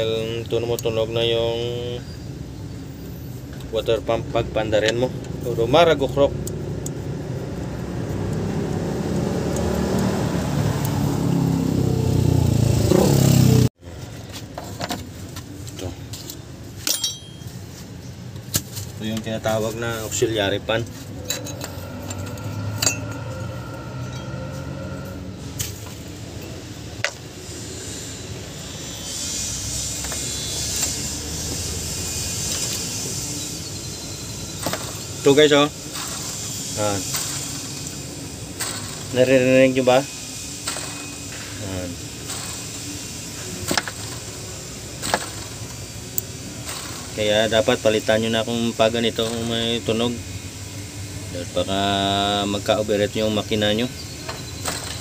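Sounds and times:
engine humming: 2.2 - 51.4, 52.8 - 55.0
vehicle engine running: 19.9 - 28.8
hiss: 26.8 - 55.0.

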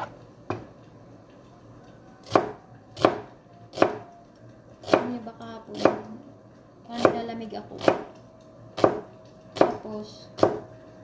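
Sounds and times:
knife chopping onion on board: 2.2 - 4.1, 4.8 - 6.1, 6.9 - 8.1, 8.8 - 10.7.

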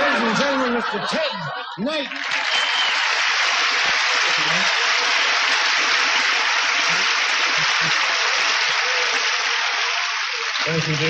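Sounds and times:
audience applauding: 2.0 - 11.0
faint voices: 3.9 - 11.0.

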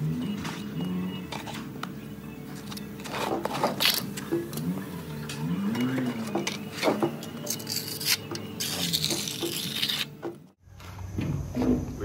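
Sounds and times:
trowel scraping wet mortar: 2.7 - 4.8, 5.6 - 10.2.

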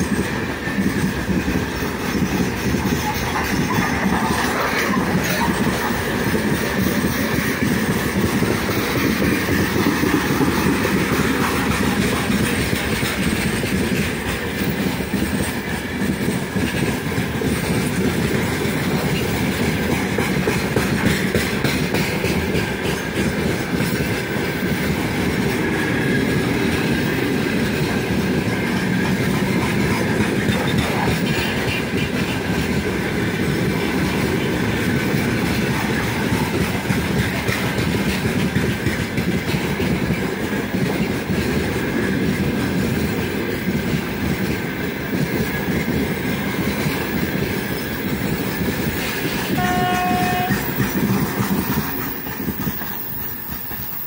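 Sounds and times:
freight train wheels rumbling: 0.0 - 54.0
train horn blast: 49.5 - 50.8.

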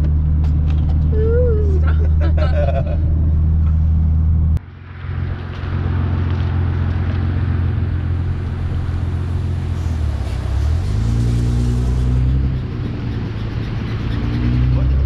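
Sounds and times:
car engine cruising: 0.0 - 15.0
tyres hissing on wet road: 5.9 - 12.3.

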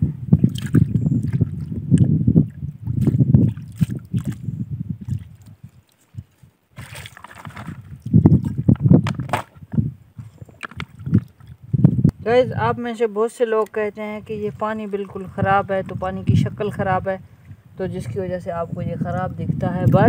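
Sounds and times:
water sloshing and splashing: 0.4 - 11.6, 13.4 - 17.0.

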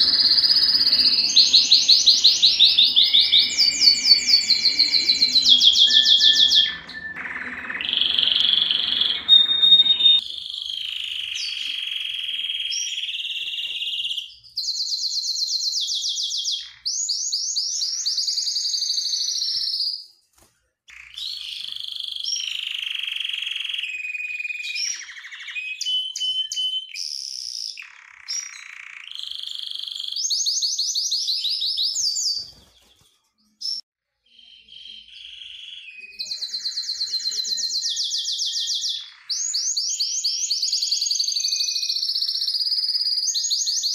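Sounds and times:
canary singing trills: 0.0 - 19.7, 33.4 - 43.9.

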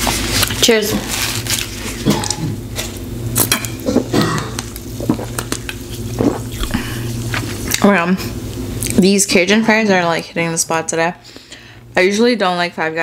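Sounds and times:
sipping and swallowing: 4.6 - 7.8.

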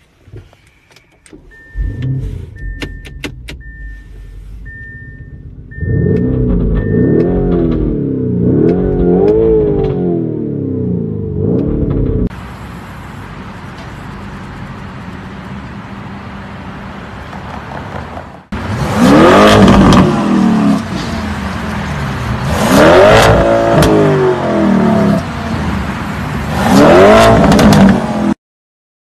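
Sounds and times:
car engine revving: 1.6 - 12.3, 18.5 - 28.4.

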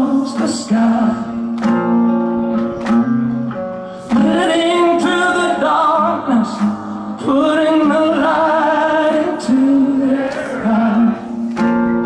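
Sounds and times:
man singing: 0.0 - 1.5, 7.2 - 11.3
rock guitar: 0.0 - 12.0.

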